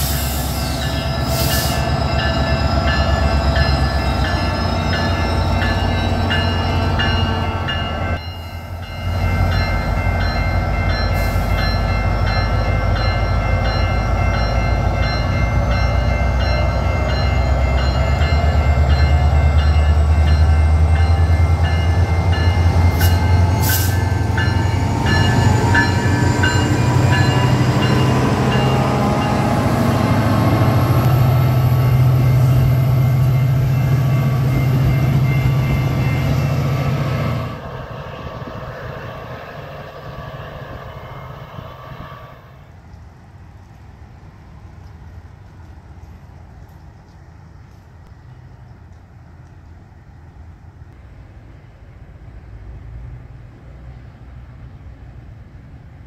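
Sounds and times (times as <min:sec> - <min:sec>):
diesel locomotive rumble: 0:00.0 - 0:56.0
rising whine: 0:15.0 - 0:42.7.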